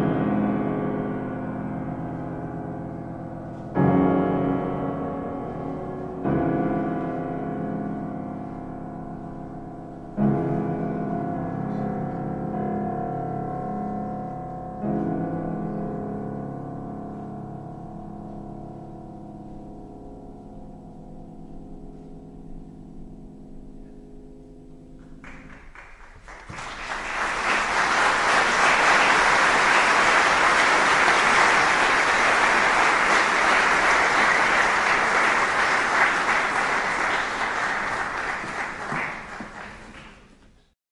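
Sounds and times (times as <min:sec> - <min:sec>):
low piano chord: 0:00.0 - 0:25.3
audience applause: 0:25.2 - 0:40.4.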